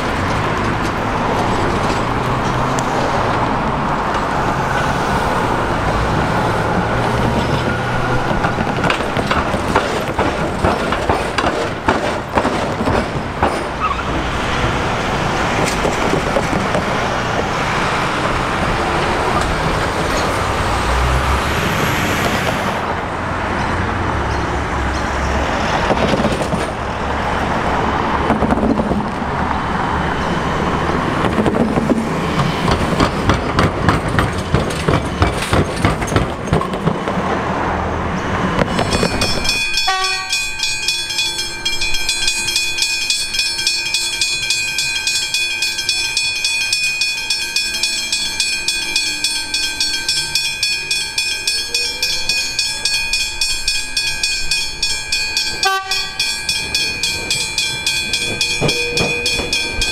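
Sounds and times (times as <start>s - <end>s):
vehicles rumbling: 0.0s - 59.9s
sharp clicks and knocks: 7.4s - 13.8s.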